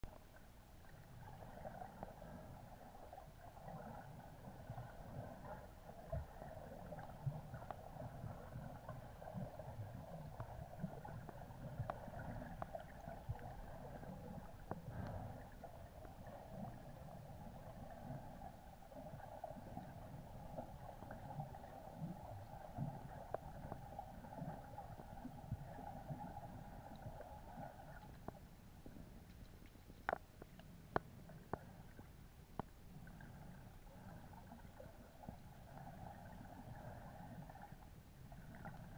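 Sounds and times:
faint clicks: 26.9 - 32.8.

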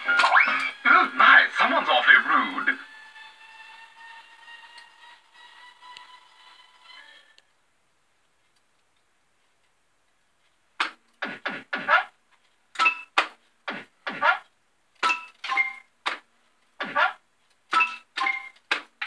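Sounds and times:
fruit machine sound effects: 0.0 - 2.0.

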